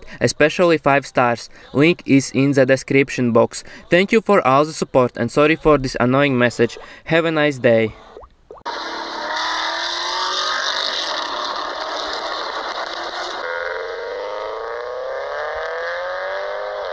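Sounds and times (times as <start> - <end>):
car engine accelerating: 8.7 - 16.9.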